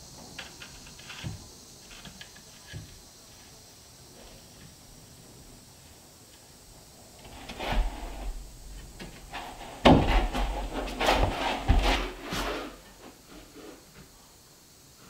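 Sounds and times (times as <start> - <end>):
wooden board knocking and scraping: 7.2 - 12.8.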